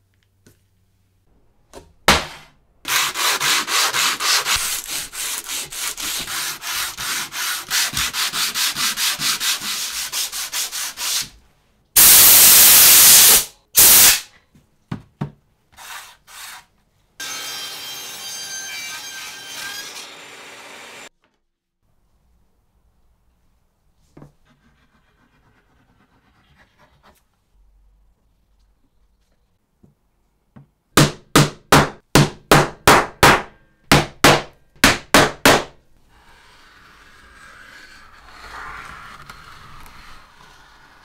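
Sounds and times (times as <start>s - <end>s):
hand sanding wood: 2.9s - 11.3s
loud hiss: 12.0s - 14.3s
table saw running: 17.2s - 21.1s.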